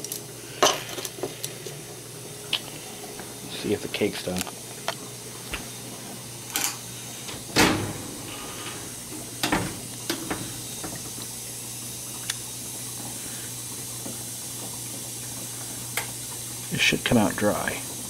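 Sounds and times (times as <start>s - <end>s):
steady hiss: 6.8s - 13.7s, 16.6s - 18.0s
oven door clunk: 7.2s - 11.2s
metal knocks and clicks: 7.3s - 11.1s.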